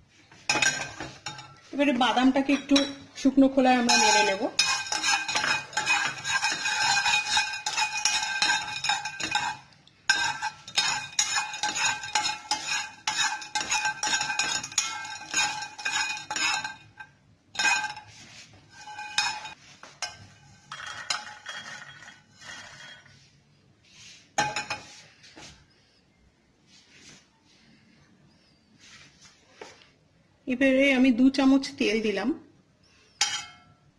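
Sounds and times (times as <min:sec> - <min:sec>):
spatula scraping a pan: 0:00.3 - 0:02.9, 0:03.7 - 0:25.5
peanuts rattling in a steel pan: 0:03.8 - 0:17.0.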